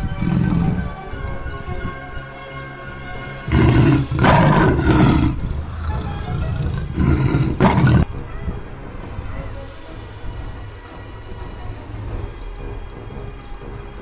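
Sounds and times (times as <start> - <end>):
lion roaring: 0.0 - 1.0, 3.4 - 8.1
background music: 0.0 - 14.0.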